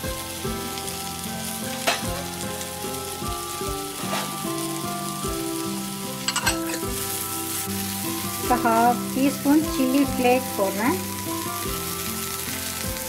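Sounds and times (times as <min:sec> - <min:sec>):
vegetables sizzling in a pan: 0:00.0 - 0:13.0
metal spatula clinking on pan: 0:06.2 - 0:07.0.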